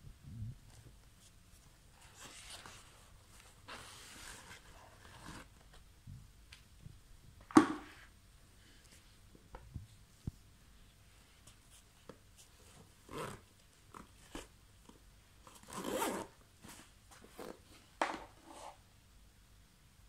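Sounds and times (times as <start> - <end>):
zipper being pulled shut: 13.1 - 13.4, 15.6 - 16.3.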